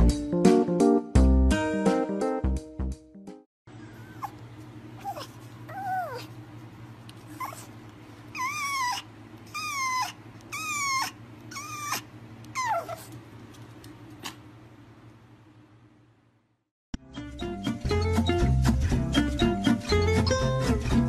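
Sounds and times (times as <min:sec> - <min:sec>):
puppy whining: 0:03.8 - 0:06.4, 0:07.2 - 0:13.2.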